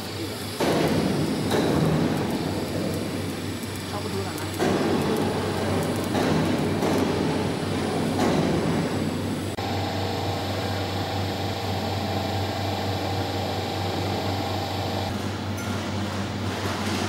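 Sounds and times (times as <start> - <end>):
welding machine humming and hissing: 0.0 - 17.0.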